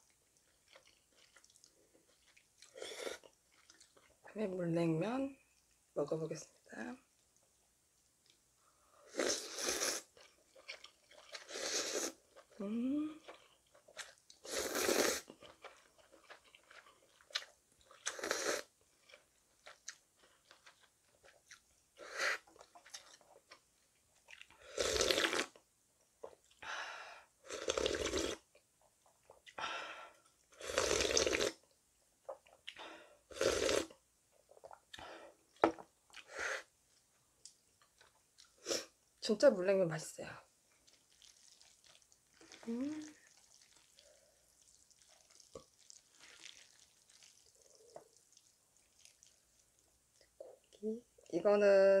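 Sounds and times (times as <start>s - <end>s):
chewing: 0.0s - 4.3s, 10.1s - 12.6s, 13.2s - 21.8s, 22.4s - 25.4s, 40.7s - 50.8s
slurping noodles: 9.1s - 10.2s, 11.3s - 12.3s, 14.4s - 15.4s, 18.0s - 18.7s, 24.6s - 25.5s, 27.5s - 28.4s, 30.6s - 31.6s, 33.3s - 33.9s, 41.1s - 49.3s.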